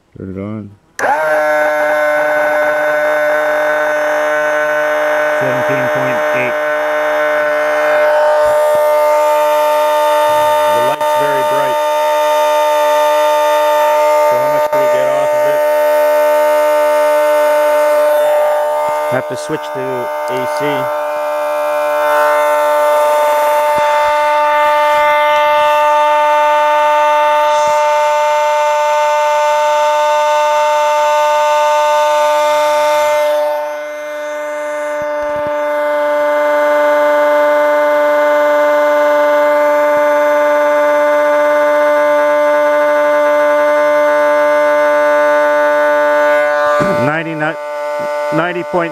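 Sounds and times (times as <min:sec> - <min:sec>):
electric motor whine: 0:01.0 - 0:48.9.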